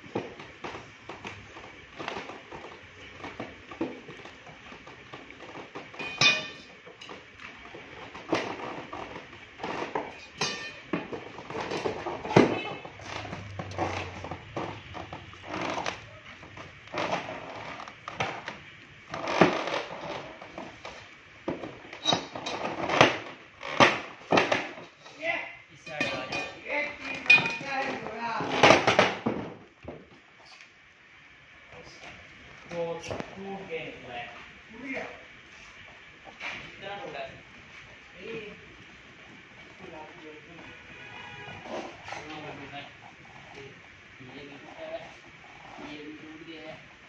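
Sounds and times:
metal pry bar clanking and scraping: 5.9s - 7.2s, 10.1s - 11.0s, 25.9s - 27.8s.

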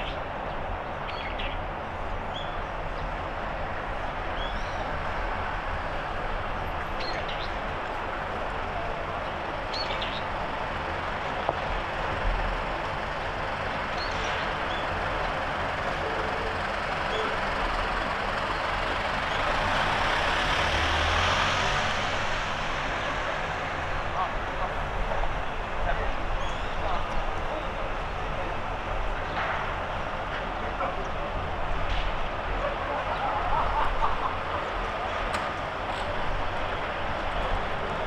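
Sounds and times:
street traffic: 0.0s - 38.0s
vehicle passing: 19.4s - 23.7s.

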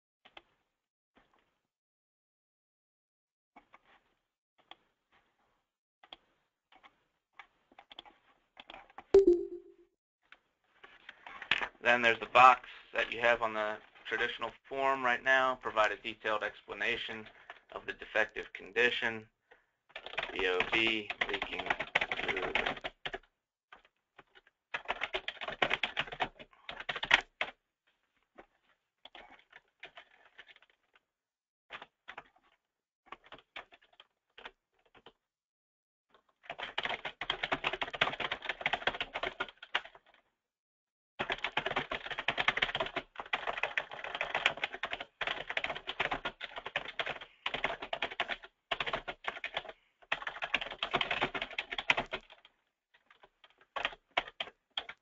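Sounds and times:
computer keyboard typing: 9.2s - 9.7s, 20.0s - 23.2s, 23.8s - 27.5s, 29.1s - 30.8s, 33.1s - 35.2s, 36.4s - 40.1s, 41.2s - 52.5s, 53.1s - 55.0s.

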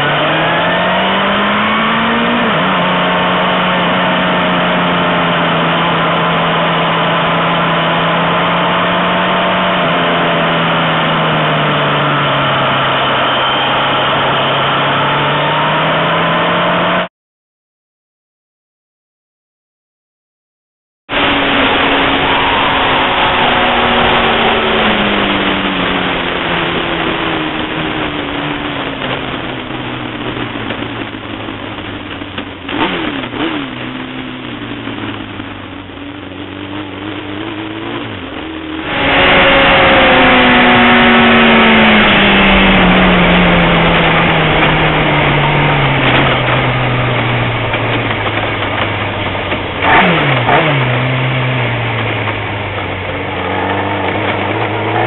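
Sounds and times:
motorcycle passing close: 0.0s - 17.1s, 21.1s - 29.6s, 32.4s - 55.0s
motorcycle engines passing: 21.2s - 55.0s.

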